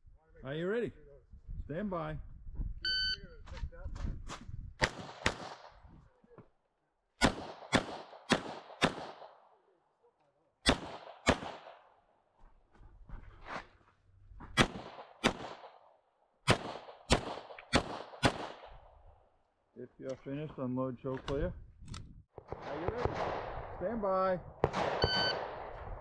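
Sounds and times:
pistol shots: 4.8 - 5.8, 7.2 - 9.5, 10.6 - 11.9, 14.6 - 15.8, 16.4 - 18.8, 22.4 - 23.8, 24.6 - 25.9.

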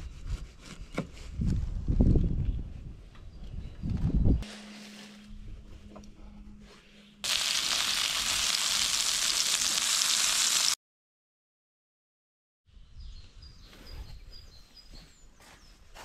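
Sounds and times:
outdoor ambience: 0.0 - 10.8, 12.7 - 16.0
sausages sizzling in frying pan: 7.2 - 10.8.

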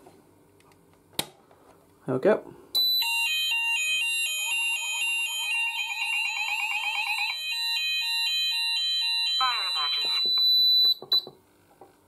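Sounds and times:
steady high-pitched alarm tone: 2.8 - 11.0
two-tone alarm sounder: 2.8 - 11.3
fast warbling alarm tone: 3.0 - 10.6.

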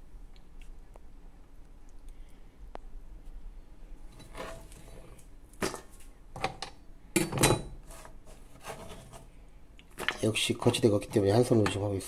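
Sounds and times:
kitchen utensils knocking and clinking: 6.4 - 7.8.

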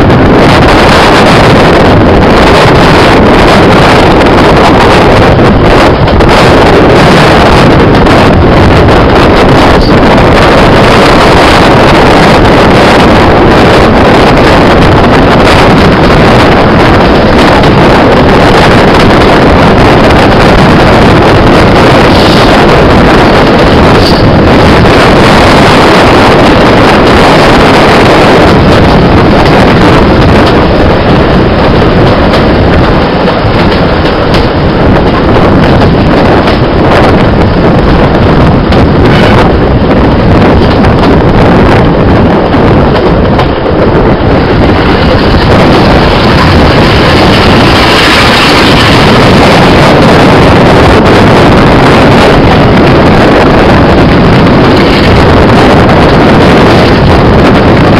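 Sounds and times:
diesel train running: 0.0 - 57.9
wind buffeting microphone: 0.0 - 57.9.

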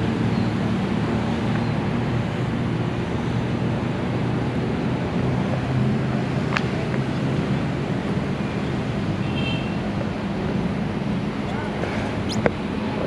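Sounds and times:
road traffic rumble: 0.0 - 13.0
high chirp: 12.2 - 12.4.

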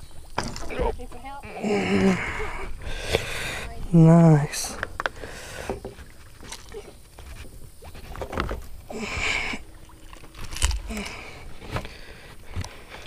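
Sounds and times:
fish flopping on wooden deck: 4.7 - 13.0.

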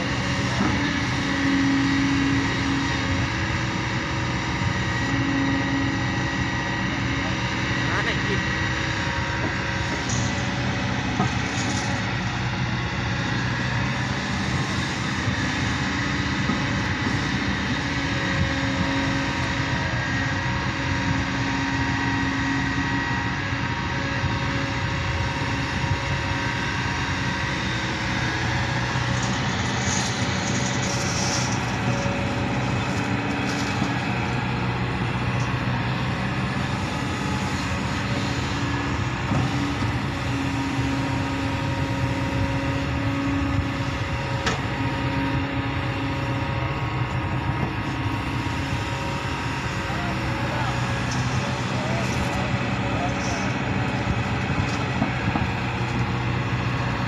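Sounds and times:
excavator diesel engine running: 0.0 - 57.0.

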